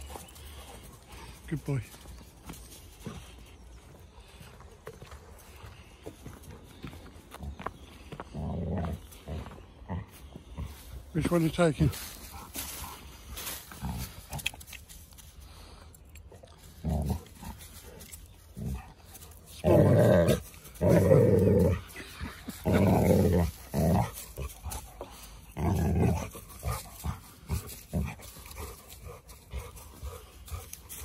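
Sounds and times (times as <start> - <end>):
dog growling in play: 8.2 - 10.8, 16.3 - 31.0.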